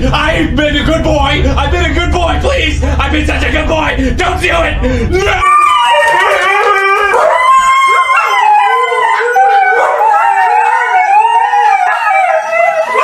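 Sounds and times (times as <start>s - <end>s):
husky howling: 5.2s - 13.0s.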